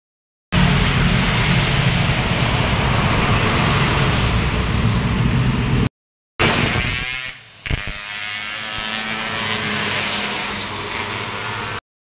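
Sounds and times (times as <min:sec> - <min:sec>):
bus engine passing: 0:00.6 - 0:05.9
motorcycle engine passing: 0:08.2 - 0:11.8.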